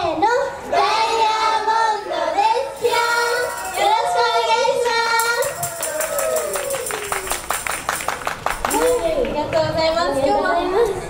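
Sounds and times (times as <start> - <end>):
girls singing through microphones: 0.0 - 5.7.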